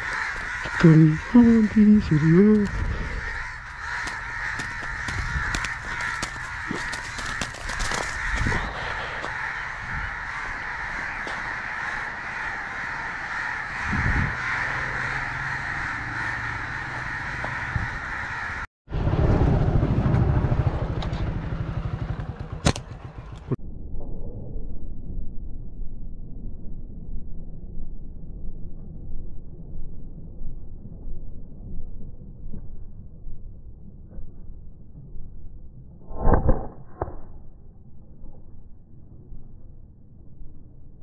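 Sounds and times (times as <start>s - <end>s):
crows cawing: 0.0s - 18.7s
low rumble: 18.9s - 41.0s.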